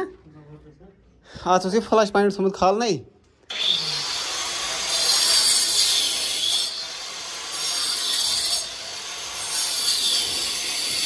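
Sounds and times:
angle grinder cutting brick: 3.5 - 11.0.

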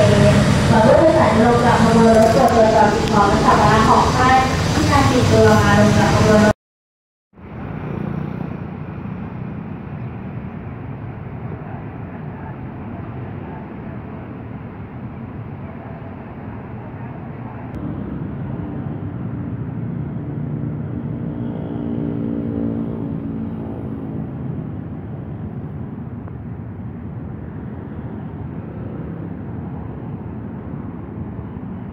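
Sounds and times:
diesel locomotive engine rumbling: 0.0 - 6.5, 7.4 - 21.2.

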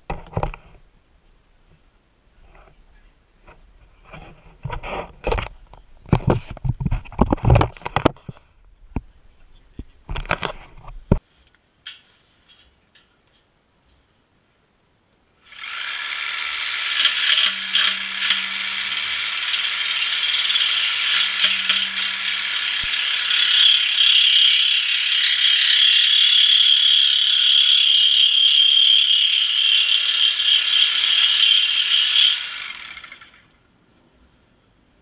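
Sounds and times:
reciprocating saw cutting metal pipe: 15.5 - 33.5.

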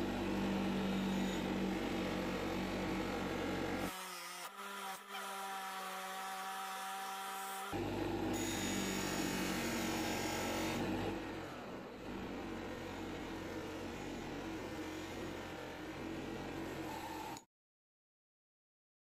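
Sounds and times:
bench grinder motor hum: 0.0 - 17.4.

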